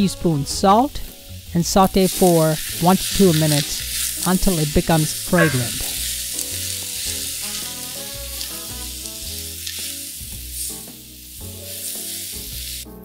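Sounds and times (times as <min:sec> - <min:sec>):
vegetables sizzling in hot oil: 0:00.0 - 0:13.0
wooden spoon stirring: 0:01.9 - 0:09.8
background music with beat: 0:05.4 - 0:13.0.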